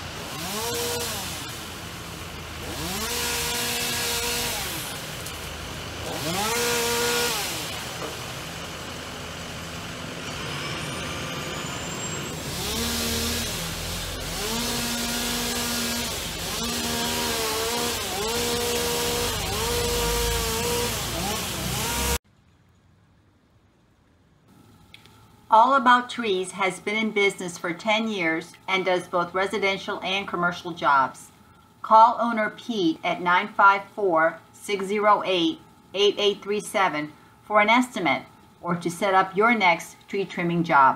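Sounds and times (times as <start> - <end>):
chainsaw revving and idling: 0.0 - 22.2
faint low background hum: 22.3 - 40.9.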